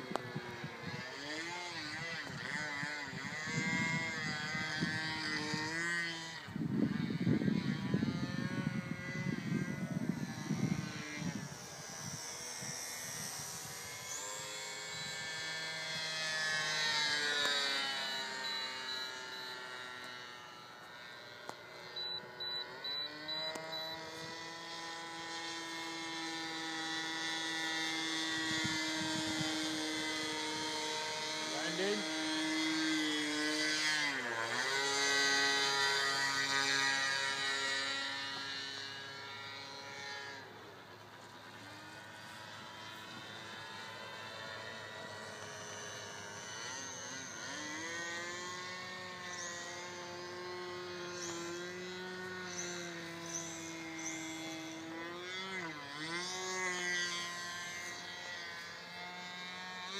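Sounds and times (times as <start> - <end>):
model airplane motor buzzing: 0.0 - 59.9.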